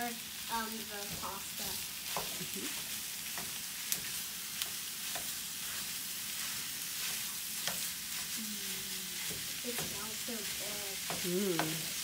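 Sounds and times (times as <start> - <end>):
meat sizzling in a frying pan: 0.0 - 12.0
wooden spatula stirring: 2.0 - 12.0
spatula tapping on pan: 2.1 - 2.4, 3.2 - 5.4, 7.6 - 7.9, 9.2 - 10.1, 11.0 - 11.9.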